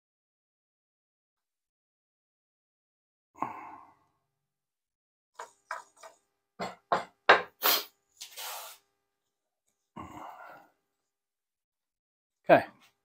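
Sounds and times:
wood rubbing and scraping: 5.4s - 6.2s
wooden knocks and taps: 5.4s - 7.5s.

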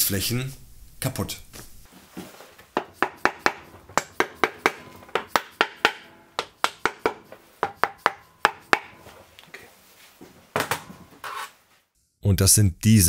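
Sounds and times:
mallet knocking on metal crankcase: 2.8s - 9.1s.

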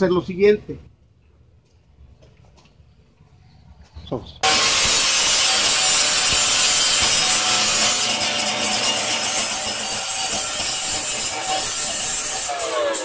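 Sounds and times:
angle grinder grinding metal: 4.4s - 13.0s.

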